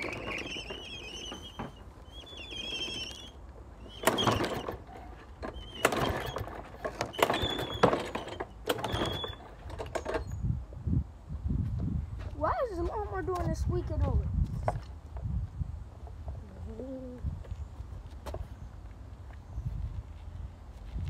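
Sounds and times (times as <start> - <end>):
lawnmower recoil starter pulls: 3.9 - 10.4.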